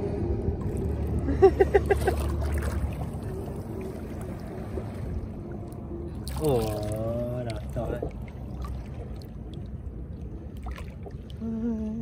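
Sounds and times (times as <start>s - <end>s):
low steady rumble: 0.0s - 12.0s
person laughing: 1.2s - 2.3s.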